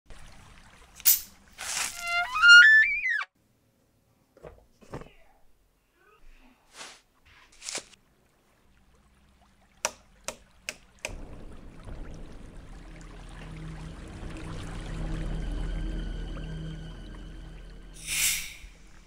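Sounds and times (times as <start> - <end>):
sparkling water fizzing: 0.1 - 2.6, 7.6 - 19.0.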